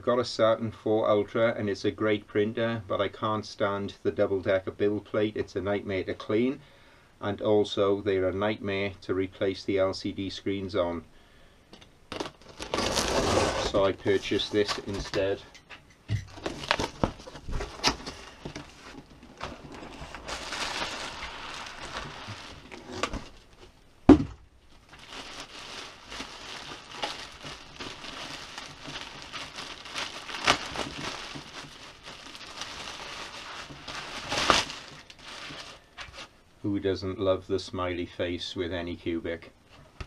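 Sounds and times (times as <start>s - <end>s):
plastic crinkling and rustling: 12.1s - 15.6s, 16.2s - 23.8s, 24.6s - 36.3s
cardboard box opened: 12.2s - 15.2s, 16.3s - 23.4s
loud thump: 24.1s - 24.4s.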